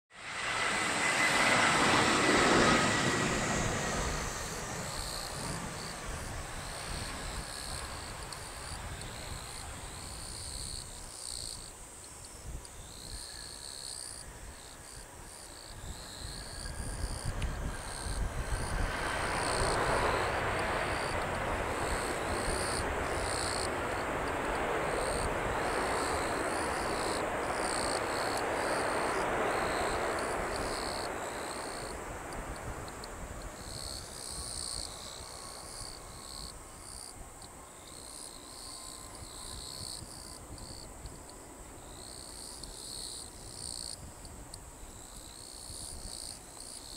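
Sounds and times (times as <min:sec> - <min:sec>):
jet engines roaring: 0:00.1 - 0:10.8, 0:15.9 - 0:37.6
faint engine whine: 0:00.1 - 0:43.7
insects chirring: 0:00.3 - 0:46.9.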